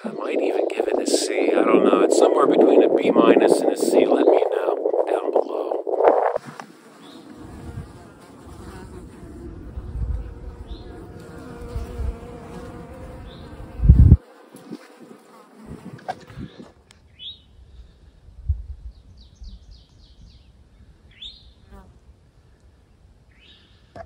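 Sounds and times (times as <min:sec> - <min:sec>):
flies buzzing: 0:00.0 - 0:16.7.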